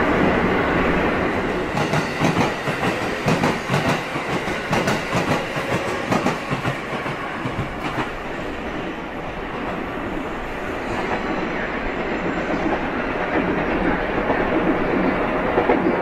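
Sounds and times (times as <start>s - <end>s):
train running noise: 0.0s - 16.0s
train wheels clacking on rail joints: 1.7s - 8.3s.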